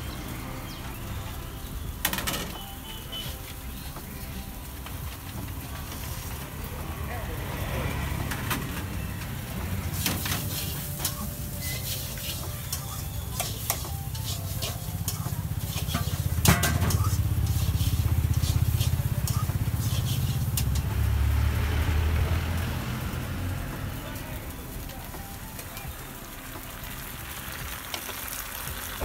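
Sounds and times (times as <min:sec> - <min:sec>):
dosa sizzling on griddle: 0:00.0 - 0:29.0
metal spatulas clinking and scraping: 0:10.0 - 0:20.9.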